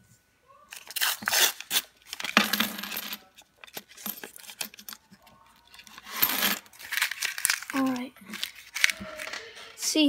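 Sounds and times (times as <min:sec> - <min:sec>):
paper wrapper tearing and crinkling: 0:00.7 - 0:02.2, 0:06.6 - 0:09.6
coins clinking on wooden table: 0:01.0 - 0:09.0.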